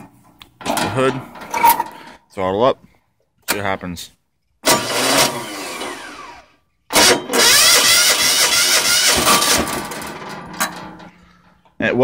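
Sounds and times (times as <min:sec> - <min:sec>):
starter cranking diesel engine: 0:04.7 - 0:10.3.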